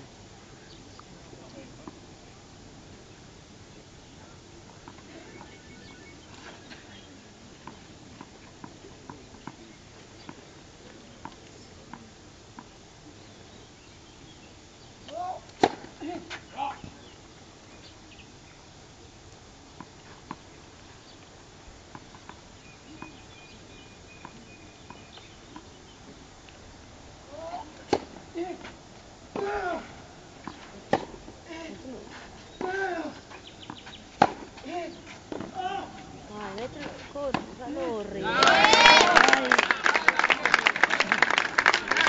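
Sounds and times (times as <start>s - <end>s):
spectators chatting: 0.0s - 17.2s, 27.2s - 42.0s
people calling out: 15.0s - 16.9s, 27.3s - 28.7s, 29.3s - 30.0s, 32.6s - 33.2s, 34.6s - 36.8s, 37.6s - 42.0s.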